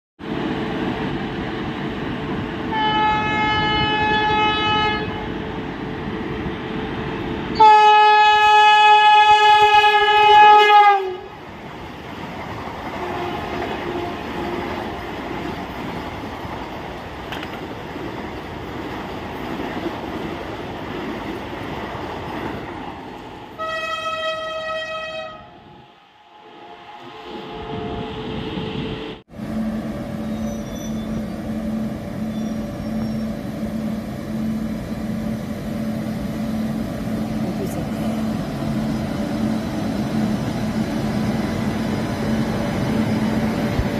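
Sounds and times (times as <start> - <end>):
train rumbling past: 0.2 - 43.9
electric train horn blasts: 2.7 - 5.3, 7.6 - 11.3, 13.0 - 14.8, 23.6 - 25.7.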